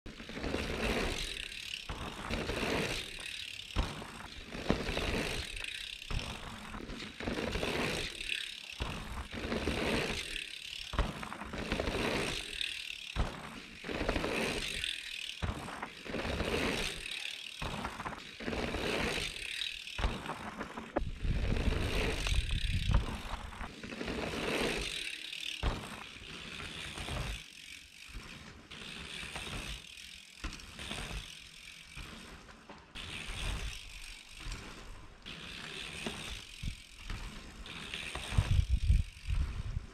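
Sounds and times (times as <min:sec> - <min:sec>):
bicycle hub ratcheting: 0:00.1 - 0:39.9
bike riding on dirt trail: 0:00.1 - 0:39.9
wind rumbling on microphone: 0:21.0 - 0:23.7, 0:38.2 - 0:39.9.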